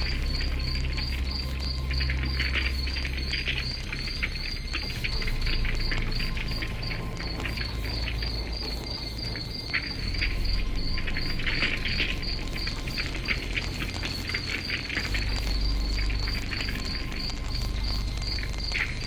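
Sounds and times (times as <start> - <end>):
crackles: 0.0 - 19.0
crickets chirping: 0.0 - 19.0
low rumble: 0.0 - 19.0.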